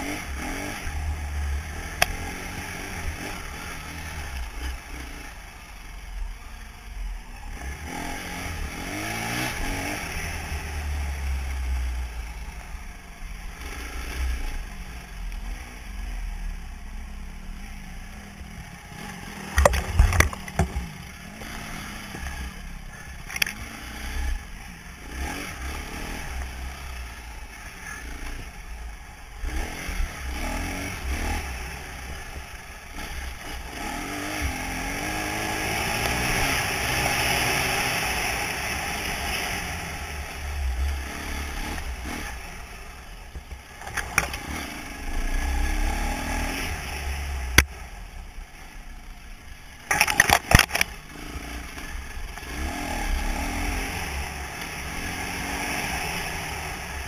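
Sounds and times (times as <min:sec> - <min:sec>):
motorbike engine revving: 0:00.0 - 0:05.5, 0:07.5 - 0:12.6, 0:17.7 - 0:48.7, 0:49.8 - 0:57.0
bike clattering and knocking: 0:19.6 - 0:21.0.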